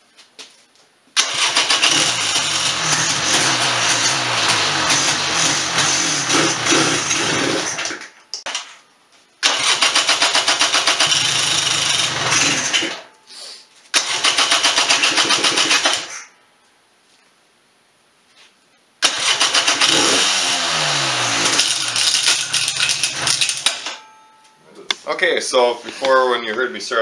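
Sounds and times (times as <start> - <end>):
engine starter cranking: 1.2 - 8.0, 9.4 - 13.0, 13.9 - 16.1, 19.0 - 24.1.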